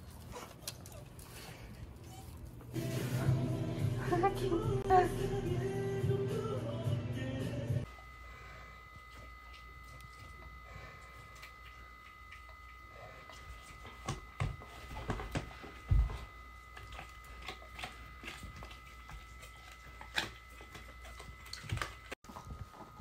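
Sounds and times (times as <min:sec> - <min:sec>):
dogs chewing on dried chews: 0:00.0 - 0:02.7, 0:09.0 - 0:23.0.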